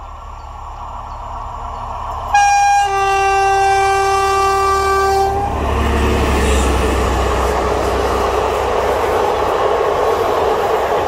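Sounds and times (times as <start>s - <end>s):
diesel locomotive rumble: 0.0s - 11.0s
two-tone locomotive horn: 2.3s - 5.6s.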